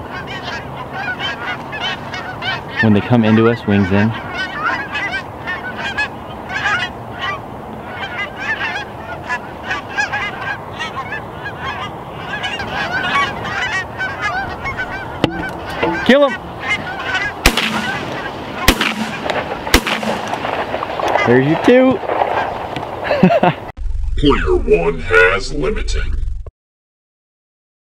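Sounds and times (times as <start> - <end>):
geese honking: 0.0 - 22.8
shotgun blast: 17.4 - 20.6.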